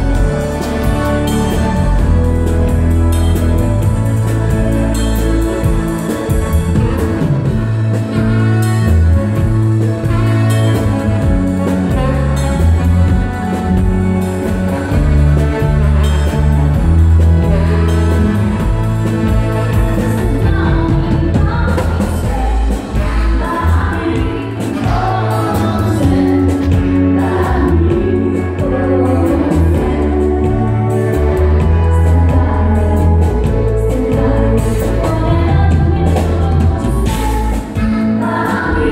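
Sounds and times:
bass line: 0.0s - 38.9s
electric guitar: 0.0s - 38.9s
keyboard: 0.0s - 38.9s
saxophone: 0.0s - 38.9s.

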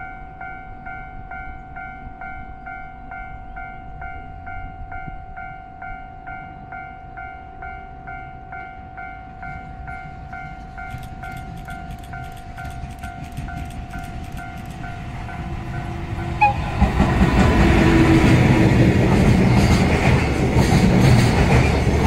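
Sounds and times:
train rumble: 6.3s - 22.0s.

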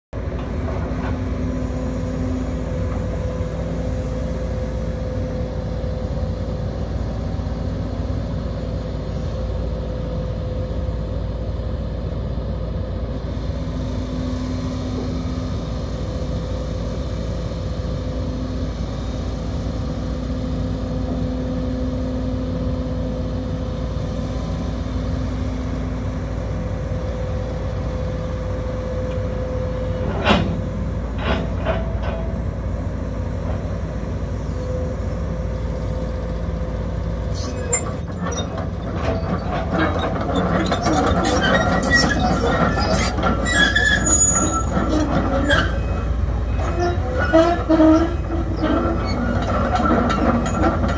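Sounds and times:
excavator diesel engine running: 0.2s - 50.9s
hydraulic whine: 37.3s - 50.9s.

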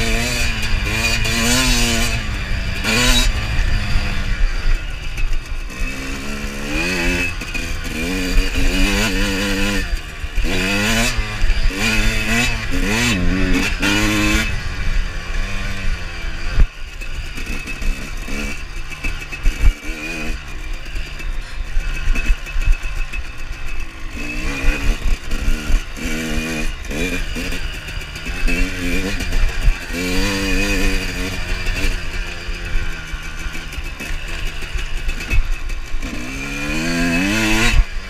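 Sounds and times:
motocross bike engine revving: 0.0s - 38.0s
sharp knock and clatter: 16.6s - 38.0s.

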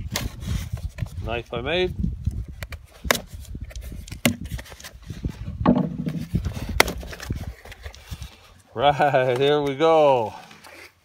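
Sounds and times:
cardboard flaps pried open: 4.0s - 4.9s, 5.7s - 7.4s.

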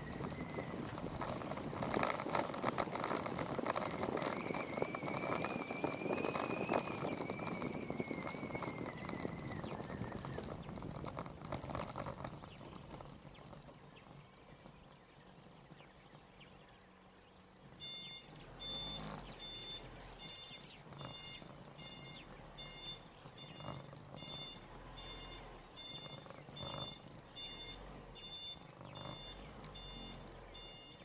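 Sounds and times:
birds chirping: 0.0s - 31.0s.

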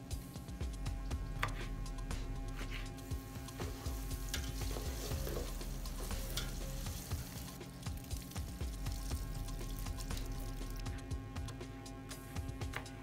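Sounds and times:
onions sizzling in hot oil: 3.6s - 10.9s.

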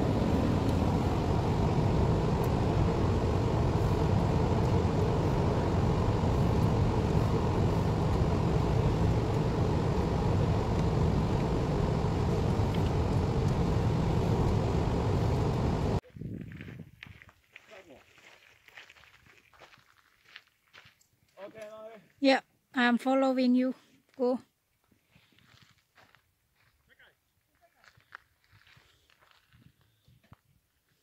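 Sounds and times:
road and engine rumble: 0.0s - 16.0s
faint outdoor sound: 0.0s - 31.0s.

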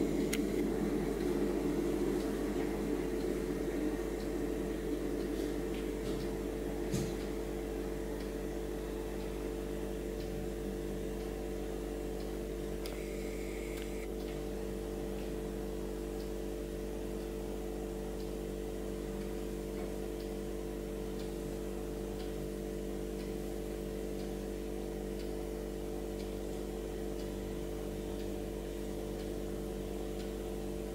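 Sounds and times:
steady machine hum: 0.0s - 30.9s
sharp click: 12.8s - 14.1s.

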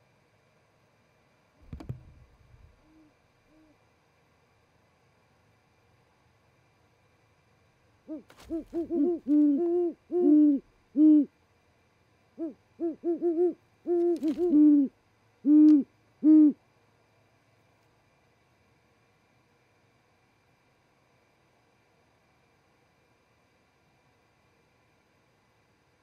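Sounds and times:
short knocks: 1.6s - 2.7s
owls hooting: 2.8s - 3.8s, 8.1s - 11.3s, 12.4s - 16.6s.

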